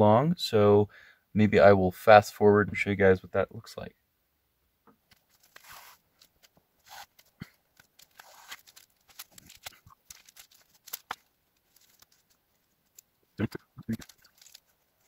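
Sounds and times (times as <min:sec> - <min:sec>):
foil insulation crinkling: 0:05.1 - 0:13.2, 0:13.9 - 0:15.0.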